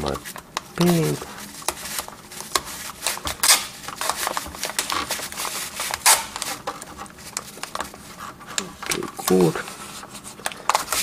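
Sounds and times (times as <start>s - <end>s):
tape rubbing on plastic: 0.1s - 8.6s
masking tape ripping off roll: 1.7s - 6.7s.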